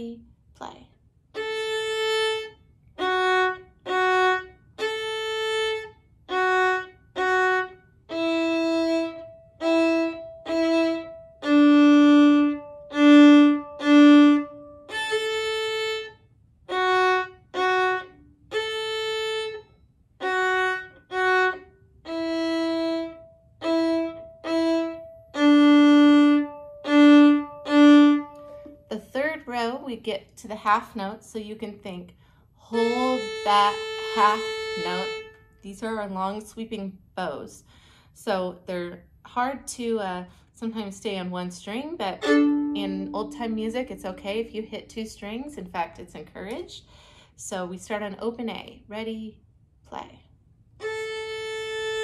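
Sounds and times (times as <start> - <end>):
solo violin bowed notes: 1.3 - 28.9, 32.7 - 35.6, 42.0 - 44.2, 50.8 - 52.0.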